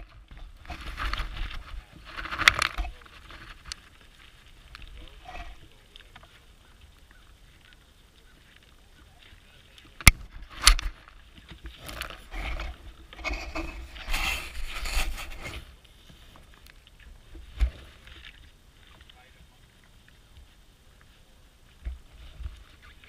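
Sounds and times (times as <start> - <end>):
sheep muzzles scraping camera: 11.8 - 15.7.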